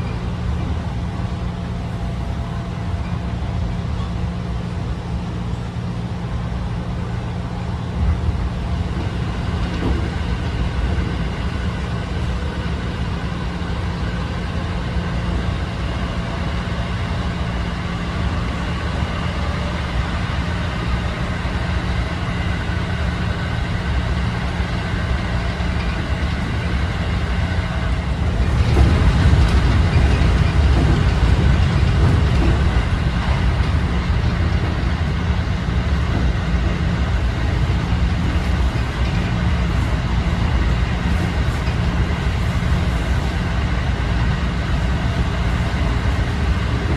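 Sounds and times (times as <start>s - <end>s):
train wheels rumbling on rails: 0.0s - 46.9s.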